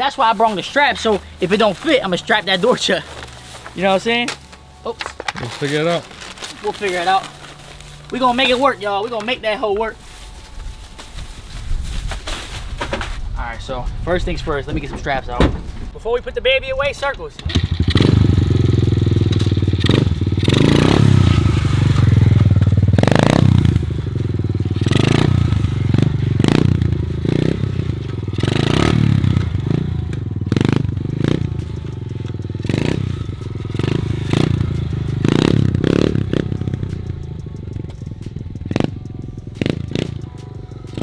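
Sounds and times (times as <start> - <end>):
motorcycle engine revving: 17.4 - 41.0.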